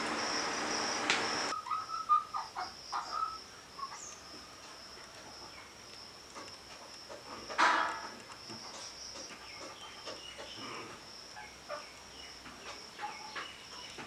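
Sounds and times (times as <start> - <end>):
high-pitched insect drone: 0.0 - 1.6
steady hiss: 0.0 - 1.6, 2.3 - 14.0
bird chirps: 1.5 - 4.2.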